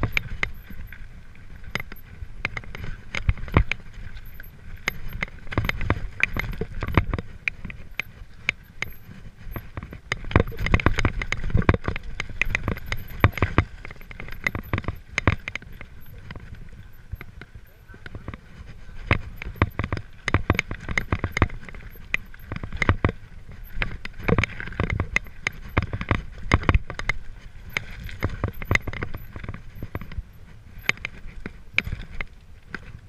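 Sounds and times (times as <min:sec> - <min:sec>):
bike jolting and clattering: 0:00.0 - 0:32.9.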